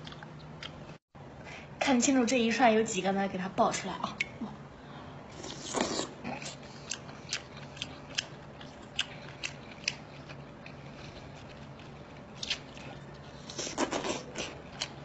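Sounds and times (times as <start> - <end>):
person chewing food: 0.0 - 1.0, 5.4 - 15.0.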